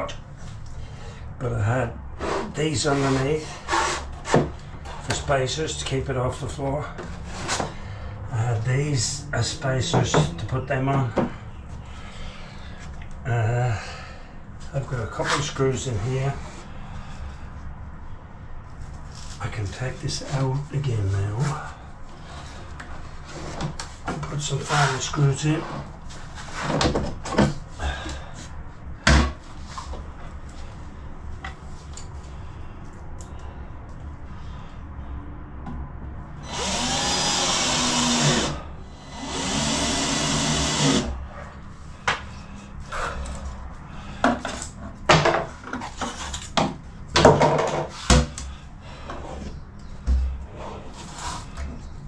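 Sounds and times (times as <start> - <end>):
cordless drill driving screws: 36.4 - 41.1.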